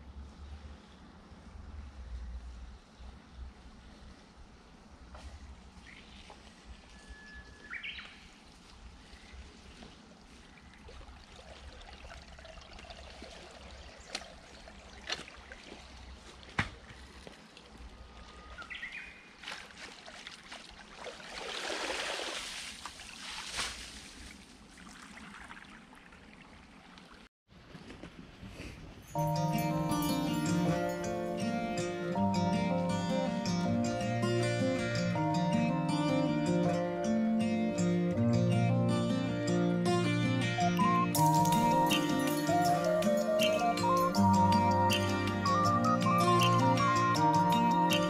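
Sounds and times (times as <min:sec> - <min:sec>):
water flowing in a ditch: 0:00.4 - 0:32.3
birds calling: 0:07.0 - 0:08.4.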